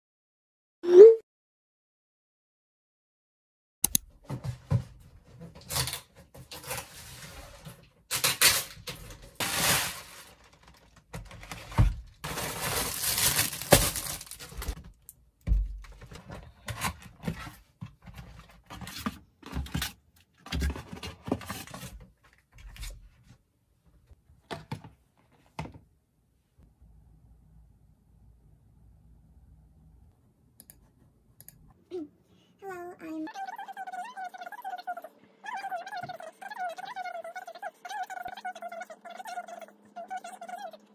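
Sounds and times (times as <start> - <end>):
plastic bags rustling: 5.6 - 14.8.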